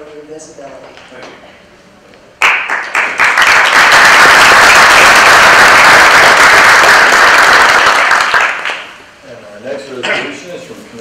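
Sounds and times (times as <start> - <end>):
audience applauding: 2.4 - 9.0.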